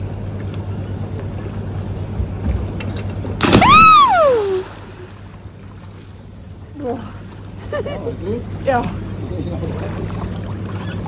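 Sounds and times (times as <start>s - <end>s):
person splashing into water: 3.4s - 5.4s.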